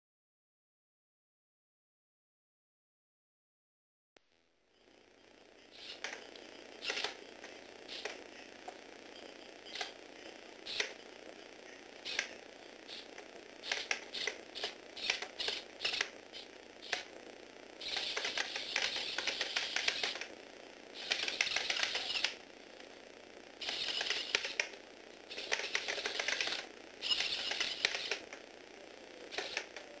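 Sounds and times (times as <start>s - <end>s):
robot toy gears clattering: 12.0s - 17.1s, 17.8s - 20.3s, 21.0s - 22.4s, 23.6s - 24.7s, 25.3s - 28.3s, 29.3s - 29.8s.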